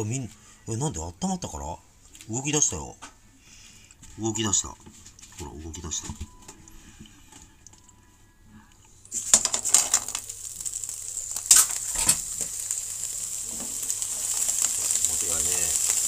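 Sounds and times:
clams sizzling in a frying pan: 9.0s - 16.0s
shells clattering against pan: 9.1s - 10.3s.

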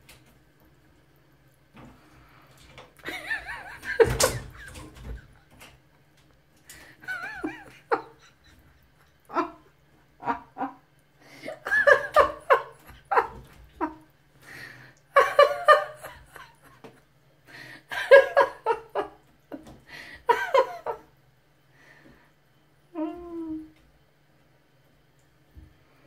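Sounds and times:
person laughing: 3.0s - 5.4s, 7.0s - 10.8s, 11.4s - 14.1s, 15.1s - 17.1s, 17.8s - 19.2s.

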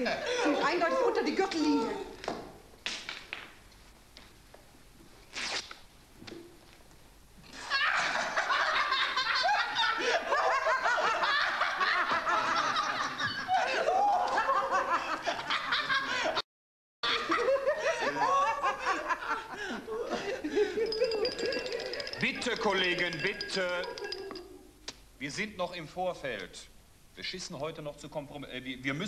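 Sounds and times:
group of people laughing: 7.5s - 16.4s, 17.0s - 22.1s.

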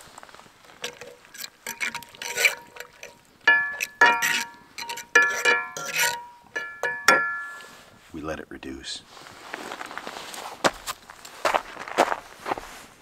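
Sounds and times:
metal utensil scraping a pan: 0.7s - 7.8s
utensil clinking on pan: 0.8s - 7.8s.

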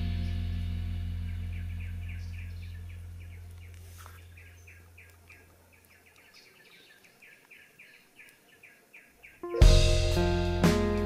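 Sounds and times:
bird chirping: 0.0s - 11.0s
background music: 9.4s - 11.0s.

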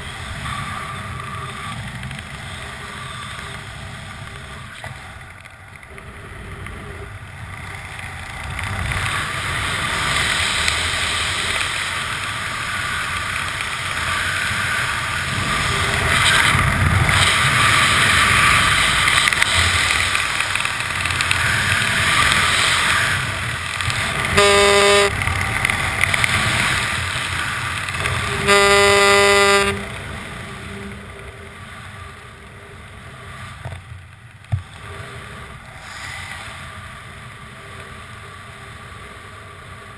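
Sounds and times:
horn toots: 24.2s - 25.3s, 28.0s - 31.4s.

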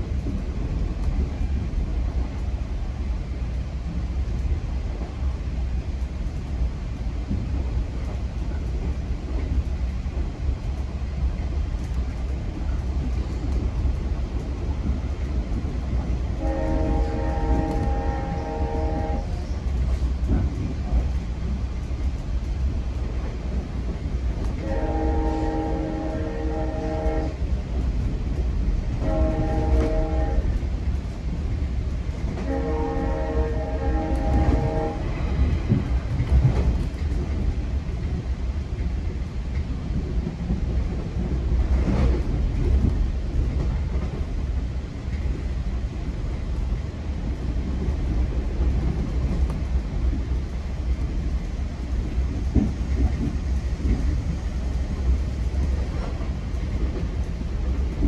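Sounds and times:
train rumbling on rails: 0.0s - 58.0s
train horn blasts: 16.4s - 19.5s, 24.6s - 27.4s, 29.0s - 30.6s, 32.4s - 35.4s.

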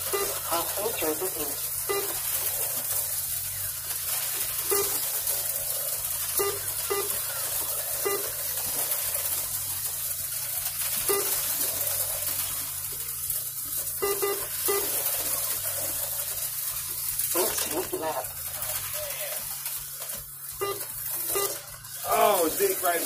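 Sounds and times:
short beeps: 0.0s - 0.6s, 1.8s - 2.2s, 4.7s - 5.0s, 6.4s - 7.2s, 8.0s - 8.4s, 11.0s - 11.4s, 14.0s - 15.0s, 20.6s - 21.6s
slot cars whirring: 0.0s - 23.0s.

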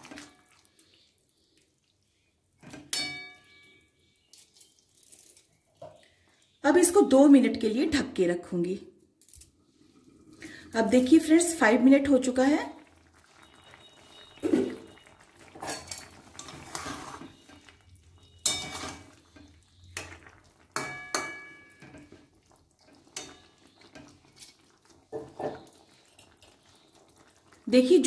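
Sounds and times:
spoon stirring thick stew: 0.0s - 4.9s, 13.0s - 27.6s
spoon clinking on metal pan: 2.8s - 4.6s, 15.6s - 16.9s, 18.3s - 19.1s, 20.8s - 22.1s, 23.2s - 23.5s.

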